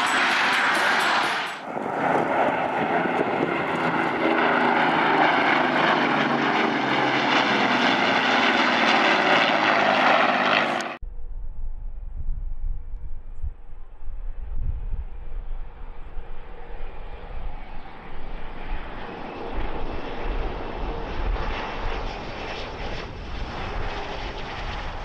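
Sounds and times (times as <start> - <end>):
faint jet on approach: 0.0 - 25.0
jet engine noise: 0.0 - 25.0
wind rumble on microphone: 1.6 - 4.7, 11.0 - 25.0.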